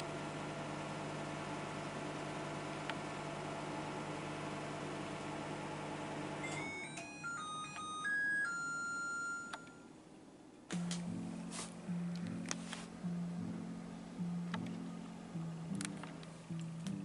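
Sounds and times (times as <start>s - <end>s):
microwave oven humming: 0.0s - 17.0s
electronic beep melody: 6.4s - 9.9s
music: 6.4s - 10.0s, 10.7s - 17.0s.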